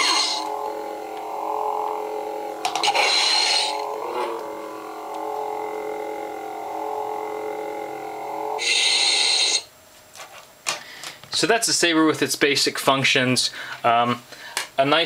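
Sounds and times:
lightsaber electronic hum: 0.0s - 9.8s.

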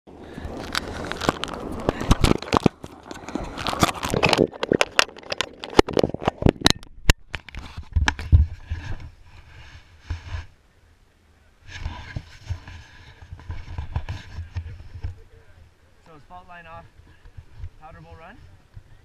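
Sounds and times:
camera clicking and scraping on mount: 0.5s - 9.1s.

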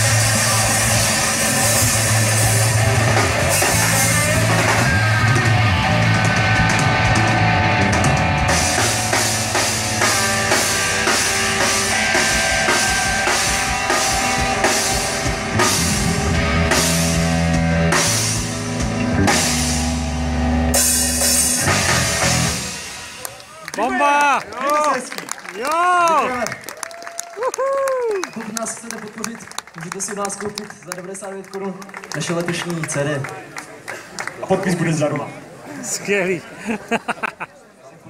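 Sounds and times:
drum strikes: 0.0s - 23.2s
live rock band playing: 0.0s - 23.5s.

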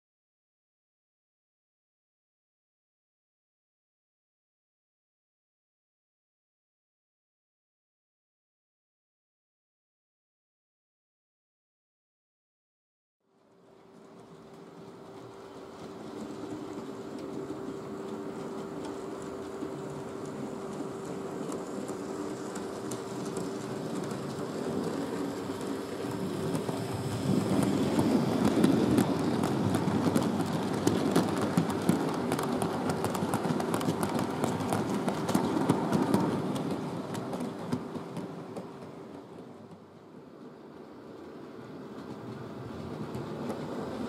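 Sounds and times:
model train wheels clicking over rails: 13.5s - 44.0s.

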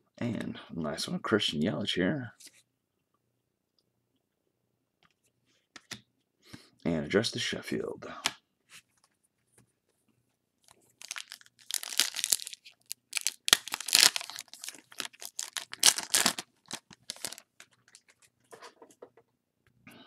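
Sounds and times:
foil wrapper tearing and crinkling: 11.0s - 18.1s.

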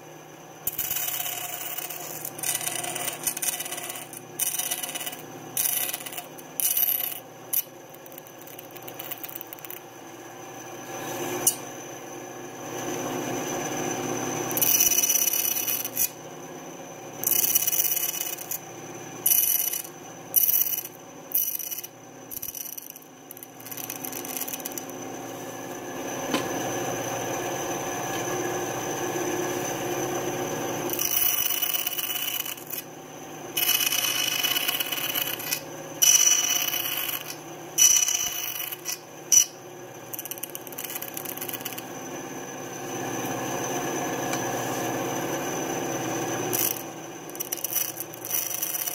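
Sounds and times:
bandsaw running: 14.4s - 16.2s, 17.2s - 18.6s, 19.2s - 25.8s, 30.9s - 32.8s, 33.5s - 39.5s, 46.0s - 48.9s.

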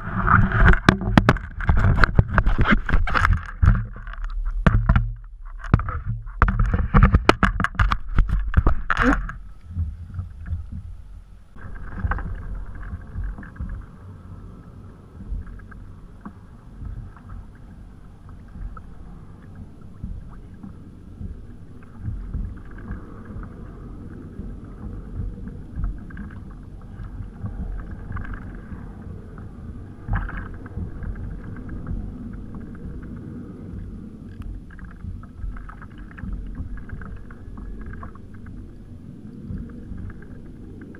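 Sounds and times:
water lapping against kayak hull: 0.0s - 40.9s
sharp clicks and knocks: 0.1s - 10.9s.

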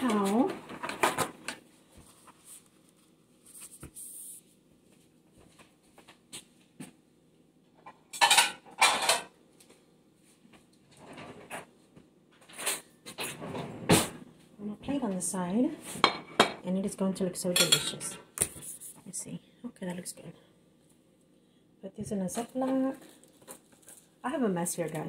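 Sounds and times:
paper towel rustling: 0.0s - 6.5s
dishes and cabinets clattering: 7.8s - 9.3s, 16.0s - 16.6s, 17.6s - 18.3s.

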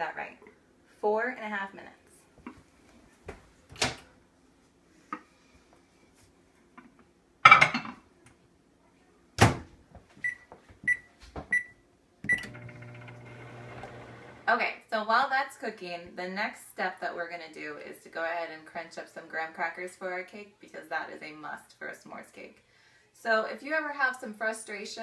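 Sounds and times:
microwave oven humming: 12.2s - 14.5s
keypad beeps: 12.3s - 12.5s.

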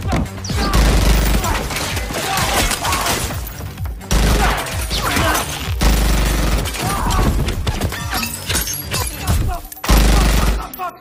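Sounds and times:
automatic gunfire bursts: 0.6s - 1.7s, 5.8s - 6.8s, 9.9s - 10.8s.

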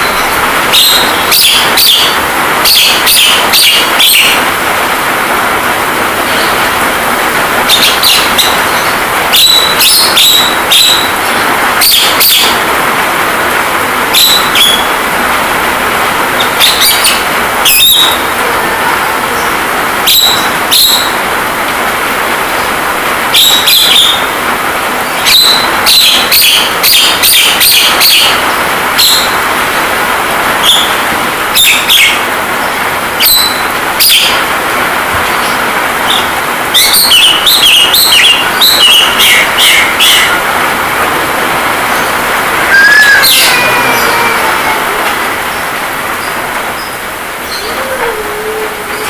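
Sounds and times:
rain hiss: 0.0s - 49.0s
bird falling whistle: 42.7s - 43.6s.

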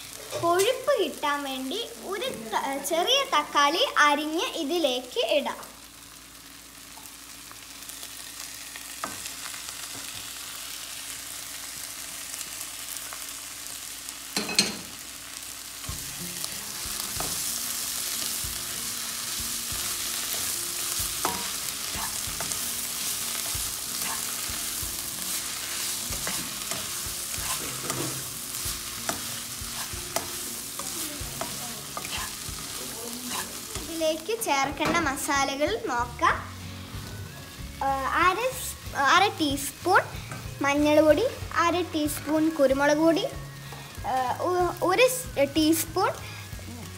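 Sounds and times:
onions sizzling in oil: 0.0s - 46.9s
spatula scraping pan: 19.3s - 24.6s, 25.2s - 33.9s.

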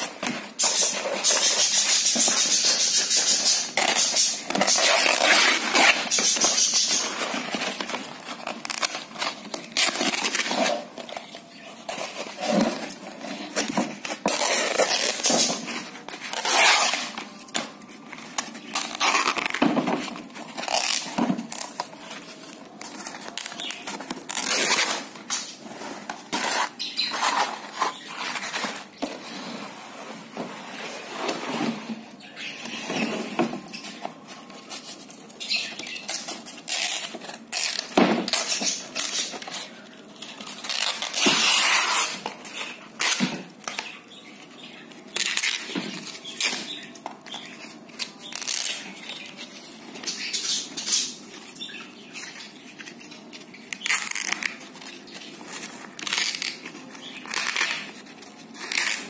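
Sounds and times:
canvas being ripped by hand: 16.4s - 17.1s, 24.3s - 24.9s.

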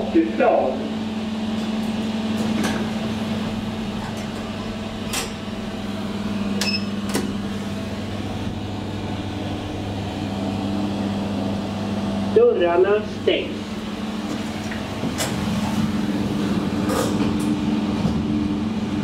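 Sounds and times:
elevator electrical hum: 0.0s - 19.0s
short button beep: 6.6s - 6.9s.

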